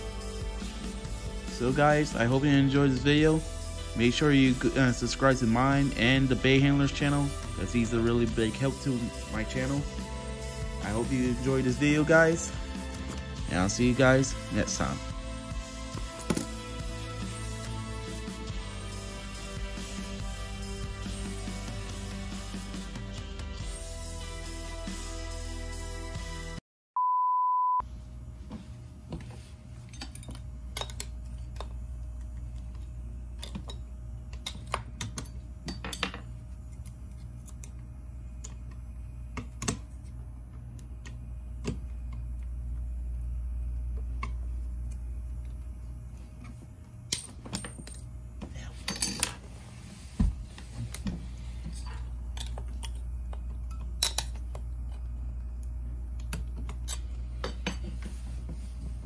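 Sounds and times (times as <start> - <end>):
electronic beep: 27.0 - 27.8.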